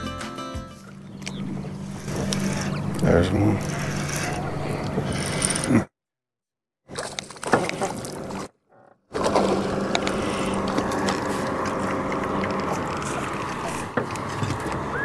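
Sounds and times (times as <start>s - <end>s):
low hum: 0.7s - 5.8s, 9.2s - 15.0s
wind and water noise: 6.9s - 8.5s, 9.1s - 15.0s.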